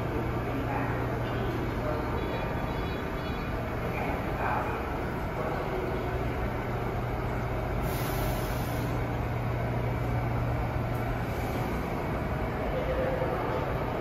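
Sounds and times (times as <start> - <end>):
station noise: 0.0 - 7.8
subway train humming: 0.0 - 14.0
short hiss: 7.8 - 9.0.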